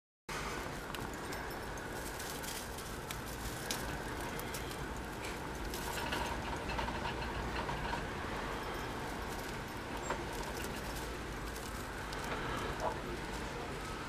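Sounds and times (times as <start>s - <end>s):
steady hiss: 11.0s - 14.0s.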